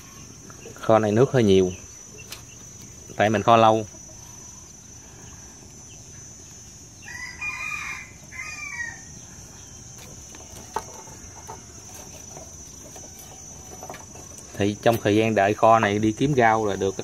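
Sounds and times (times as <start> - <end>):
high insect drone: 0.0 - 17.0
rooster crowing: 7.0 - 9.3.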